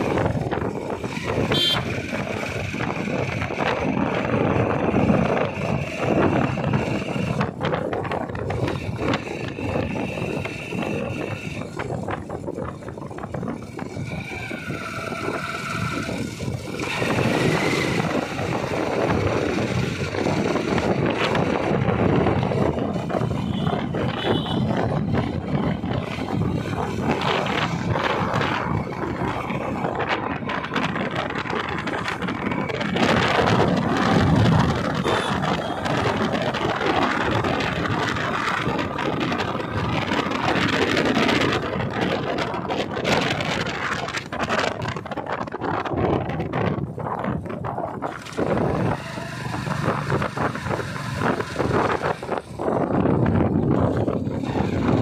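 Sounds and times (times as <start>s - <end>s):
motorcycle engine running: 0.0s - 55.0s
wind rushing on microphone: 0.0s - 55.0s.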